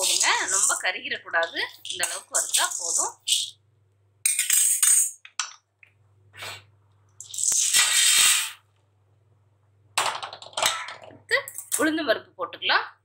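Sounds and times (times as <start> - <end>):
lentils pouring onto steel plate: 0.0 - 0.8, 7.2 - 8.6.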